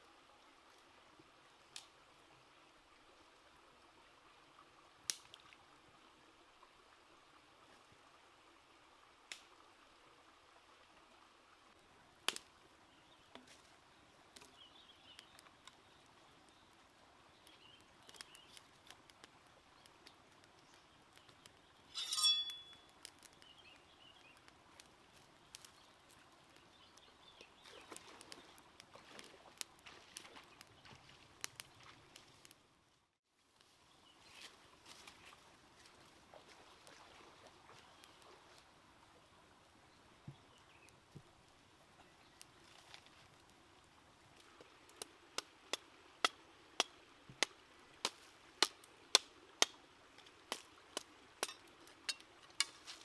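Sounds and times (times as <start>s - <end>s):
shallow stream flowing: 0.0s - 53.0s
wood fire crackling: 5.1s - 5.7s, 11.7s - 32.7s, 37.6s - 53.0s.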